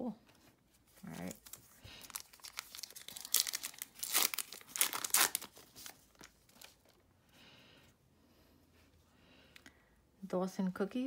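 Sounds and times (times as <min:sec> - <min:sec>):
foil wrapper tearing and crinkling: 0:01.0 - 0:07.0.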